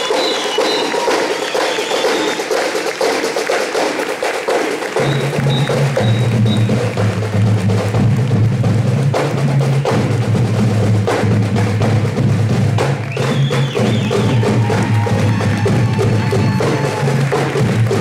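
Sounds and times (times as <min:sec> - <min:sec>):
drum and percussion strikes: 0:00.0 - 0:18.0
marching band low held notes: 0:04.2 - 0:18.0.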